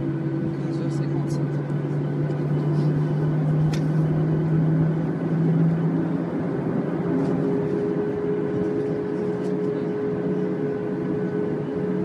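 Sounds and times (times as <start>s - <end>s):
airliner engines humming: 0.0s - 12.0s.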